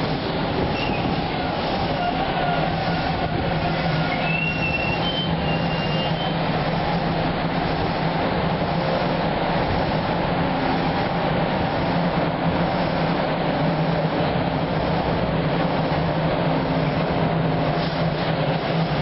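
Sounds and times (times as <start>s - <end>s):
subway train rumbling: 0.0s - 19.0s
high-pitched wheel squeal: 0.7s - 1.2s, 1.9s - 6.4s.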